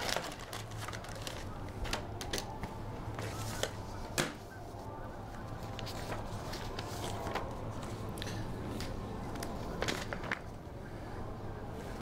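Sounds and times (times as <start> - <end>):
steady low hum: 0.4 - 12.0.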